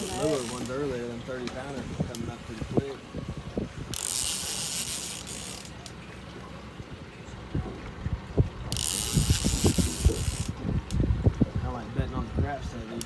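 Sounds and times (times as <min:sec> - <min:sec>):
fishing reel ratcheting buzz: 0:00.0 - 0:00.9, 0:03.9 - 0:05.8, 0:08.7 - 0:10.6.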